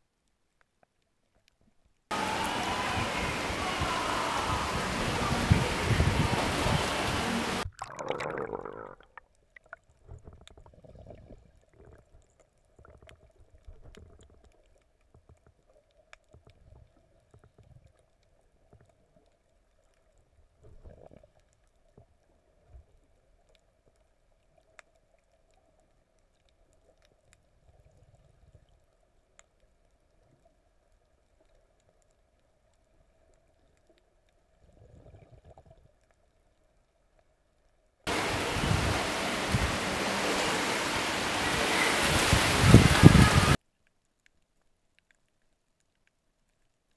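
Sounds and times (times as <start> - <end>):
underwater rumbles and gurgles: 4.4 - 46.9
loud even hiss: 38.1 - 43.6
faint clicks: 43.6 - 46.9.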